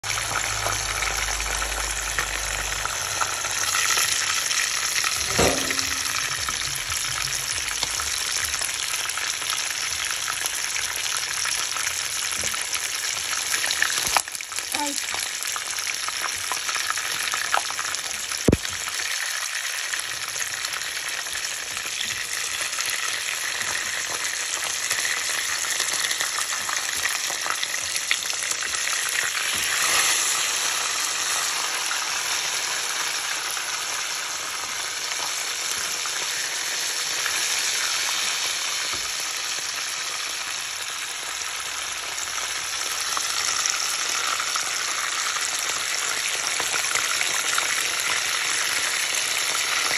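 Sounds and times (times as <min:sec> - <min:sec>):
fish sizzling in hot oil: 0:00.0 - 0:49.9.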